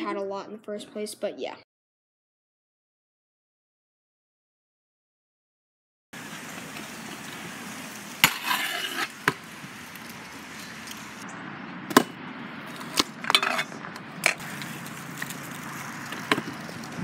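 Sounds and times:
scooter wheels rolling: 6.2 - 11.2, 12.6 - 17.0
scooter clacking on concrete: 16.1 - 17.0.

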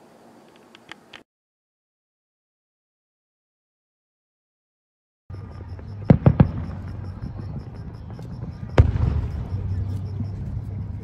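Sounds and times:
steady low rumble: 5.3 - 11.0
big boom with rolling tail: 5.5 - 11.0.

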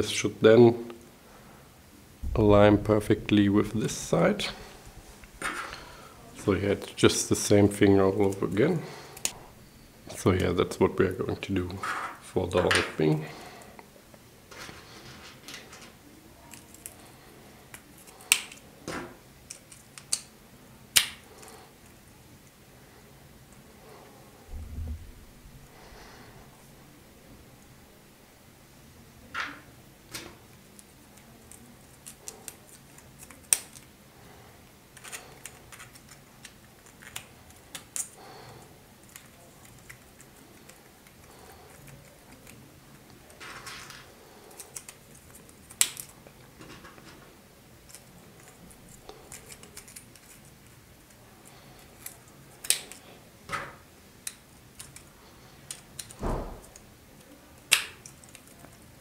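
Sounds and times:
plastic pieces clicking together: 19.4 - 20.3, 52.0 - 53.0, 54.2 - 56.9, 57.5 - 58.9
dull thump: 56.2 - 56.5.

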